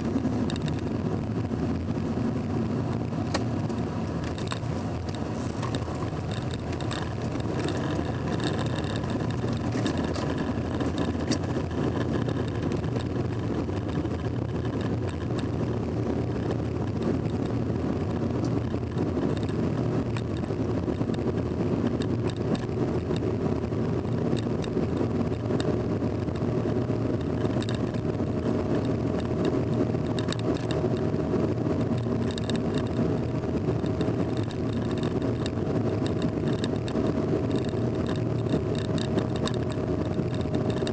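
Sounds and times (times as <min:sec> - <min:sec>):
car engine and tyre rumble: 0:00.0 - 0:40.9
faint ticks: 0:27.2 - 0:28.0, 0:28.7 - 0:31.2, 0:31.8 - 0:40.9.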